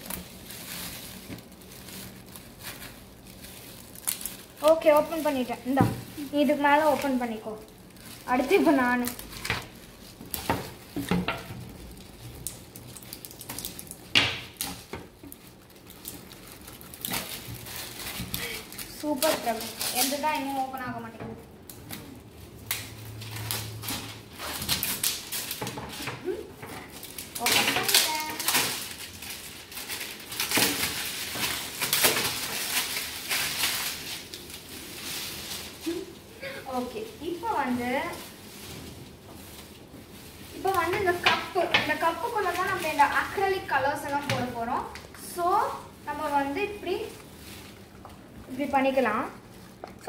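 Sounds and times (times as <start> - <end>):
shrink-wrap crinkling: 0.0 - 50.0
scissors cutting plastic: 8.2 - 21.0, 21.6 - 34.5
sharp snaps and clicks: 22.6 - 23.0.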